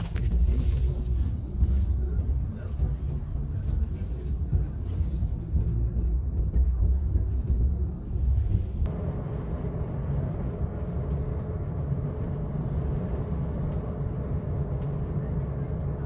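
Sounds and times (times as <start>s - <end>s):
bus engine and road noise: 0.0s - 16.0s.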